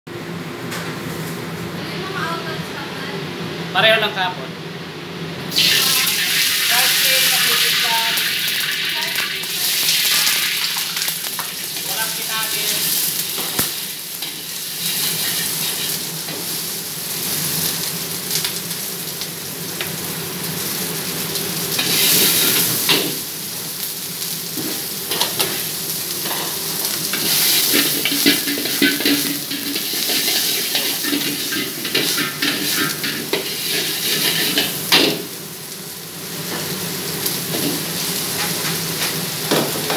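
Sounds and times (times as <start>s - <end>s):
rice sizzling in a wok: 5.4s - 39.9s
metal ladle scraping wok: 27.2s - 34.8s.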